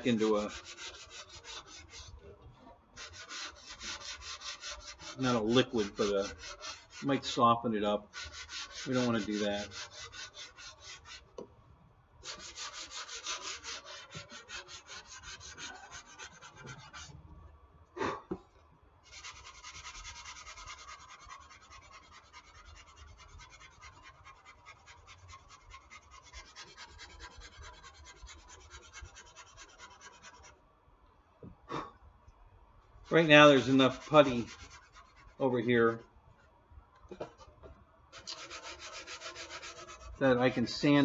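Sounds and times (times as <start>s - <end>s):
sandpaper sanding strokes: 0.0s - 2.2s, 3.0s - 7.4s, 8.1s - 11.2s, 12.2s - 17.1s, 19.1s - 30.5s, 33.1s - 35.4s, 38.2s - 41.0s.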